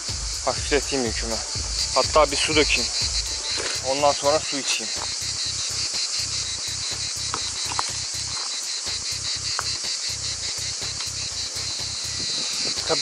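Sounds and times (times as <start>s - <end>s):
low throb: 0.0s - 8.3s
high-pitched insect chorus: 0.0s - 13.0s
short insect chirps: 0.0s - 13.0s.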